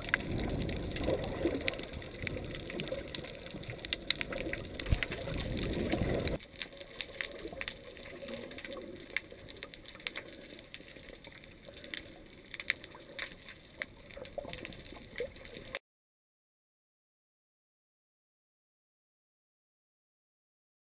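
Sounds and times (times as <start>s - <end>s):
sharp clicks and crackles: 0.0s - 15.8s
underwater rush of water: 0.0s - 15.8s.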